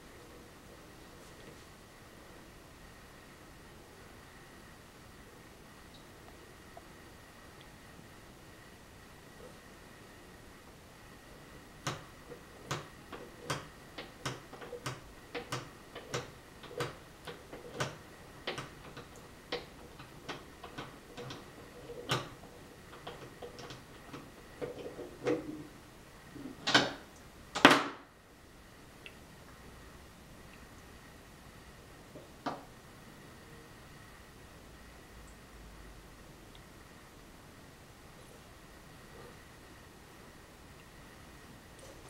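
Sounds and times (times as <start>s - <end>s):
sharp little clicks and taps: 11.8s - 12.1s, 12.7s - 21.4s.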